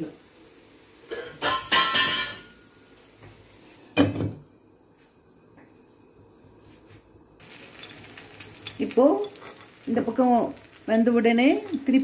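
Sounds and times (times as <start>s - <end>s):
metal lid clanking on pan: 1.1s - 2.6s.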